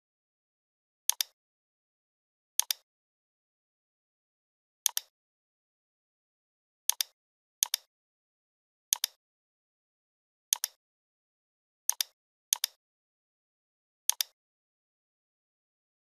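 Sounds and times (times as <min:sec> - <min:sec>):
computer mouse clicking: 0:01.1 - 0:01.4, 0:02.6 - 0:02.8, 0:04.9 - 0:05.1, 0:06.9 - 0:07.9, 0:08.9 - 0:09.2, 0:10.5 - 0:10.8, 0:11.9 - 0:12.8, 0:14.1 - 0:14.4.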